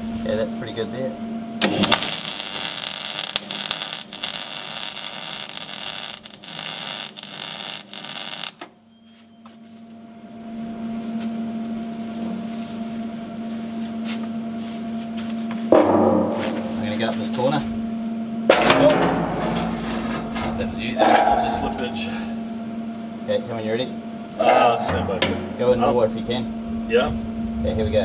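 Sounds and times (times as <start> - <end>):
steady low hum: 0.0 - 28.0
welding arc crackling: 1.6 - 8.7.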